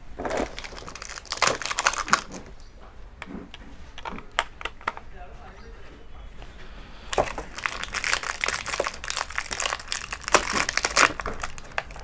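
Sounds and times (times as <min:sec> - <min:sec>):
plastic packaging crinkling: 0:00.0 - 0:02.7, 0:03.3 - 0:05.2, 0:07.1 - 0:12.0.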